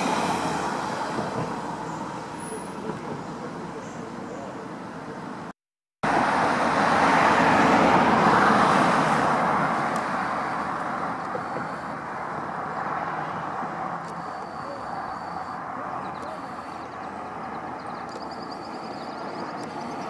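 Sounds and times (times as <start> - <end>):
vehicle passing: 6.1 - 20.0.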